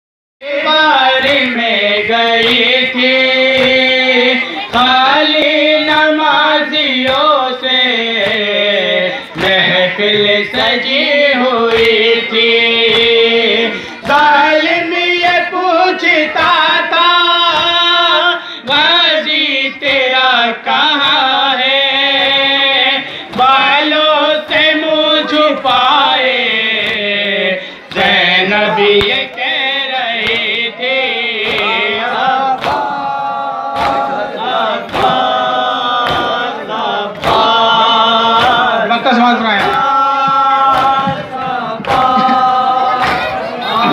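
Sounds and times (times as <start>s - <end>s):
group chanting: 0.4s - 43.9s
chest-beating slaps: 1.2s - 4.0s, 11.7s - 13.3s, 27.9s - 29.5s, 30.2s - 30.7s, 31.3s - 38.8s, 39.5s - 43.9s.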